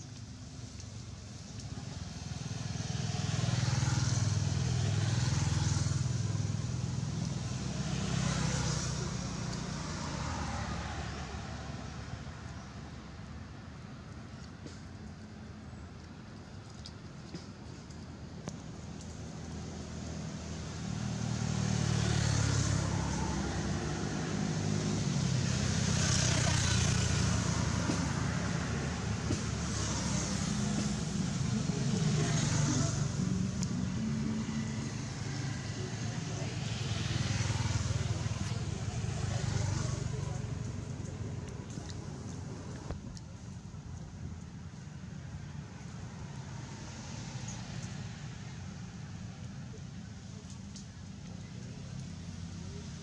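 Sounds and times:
vehicle engine running: 0:21.8 - 0:44.2.

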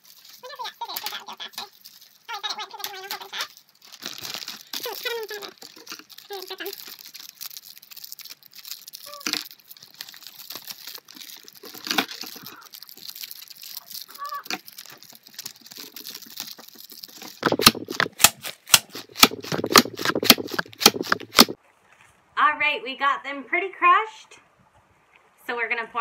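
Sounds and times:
candy wrappers crinkling: 0:00.0 - 0:21.6
hard candies being pounded: 0:04.0 - 0:21.6
scissors snipping: 0:16.4 - 0:21.6.

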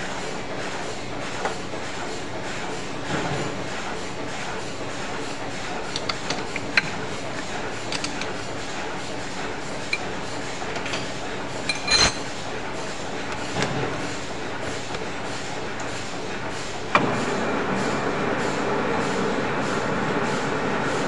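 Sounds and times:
spanner clinking on metal nut: 0:07.9 - 0:08.3, 0:10.8 - 0:12.3.

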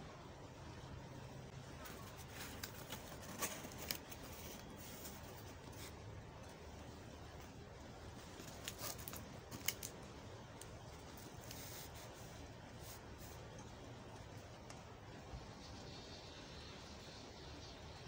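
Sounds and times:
faint room noise: 0:00.0 - 0:18.0
cardboard clicks and scrapes: 0:01.8 - 0:06.0.

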